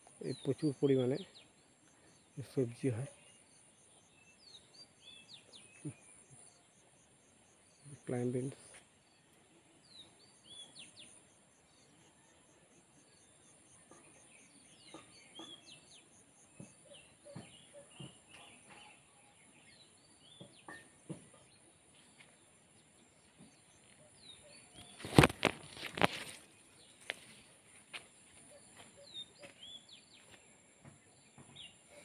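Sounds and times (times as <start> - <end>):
small birds chirping: 0.0 - 12.2, 13.0 - 32.0.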